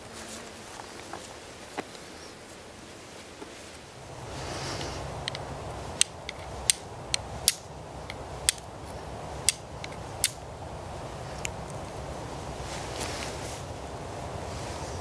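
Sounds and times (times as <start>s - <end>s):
steel striker clicking on flint: 5.2s - 8.7s, 9.4s - 10.4s.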